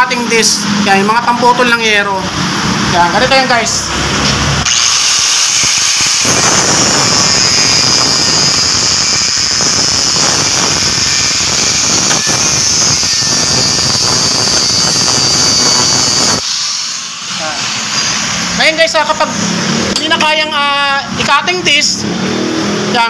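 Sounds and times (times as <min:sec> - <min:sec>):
angle grinder whine: 0:03.1 - 0:20.5
grinder cutting metal: 0:04.2 - 0:20.4.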